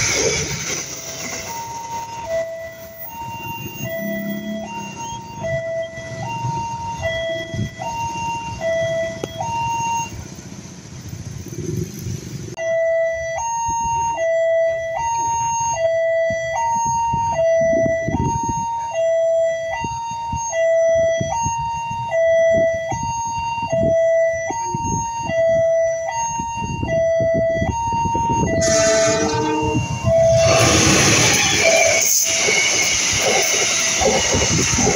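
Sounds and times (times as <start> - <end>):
level crossing two-tone alarm: 0.0 - 10.2, 12.6 - 34.9
wind noise: 16.1 - 18.8, 19.7 - 34.9.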